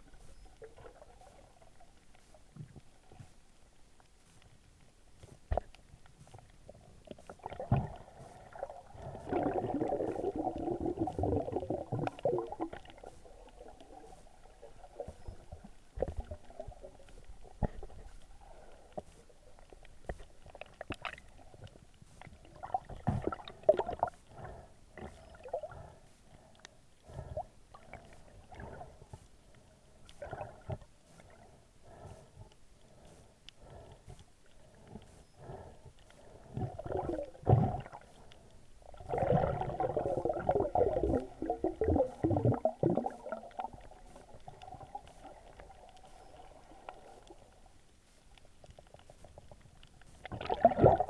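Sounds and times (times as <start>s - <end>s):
gurgling bubbling water: 7.4s - 17.9s, 22.5s - 24.1s, 36.6s - 38.1s, 38.8s - 47.1s, 50.3s - 51.0s.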